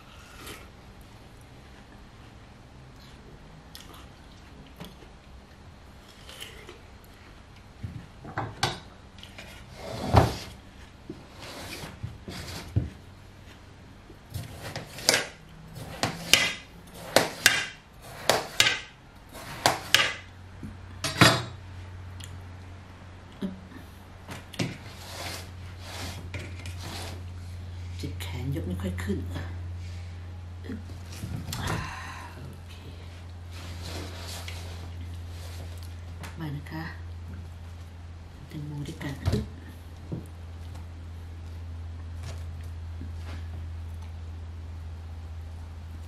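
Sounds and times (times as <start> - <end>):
low steady hum: 0.0 - 46.0
knife cutting watermelon rind: 14.4 - 20.3.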